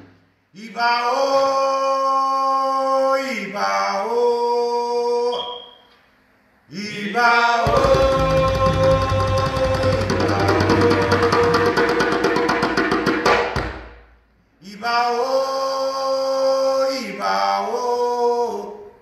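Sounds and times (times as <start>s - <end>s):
chanted singing: 6.7s - 12.0s
hand drums rolling: 7.7s - 13.8s.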